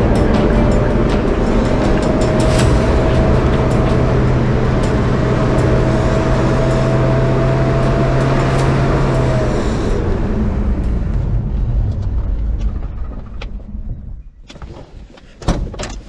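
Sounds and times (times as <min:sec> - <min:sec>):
engine drone with whine: 0:00.0 - 0:14.8
rattles and knocks: 0:10.7 - 0:16.0.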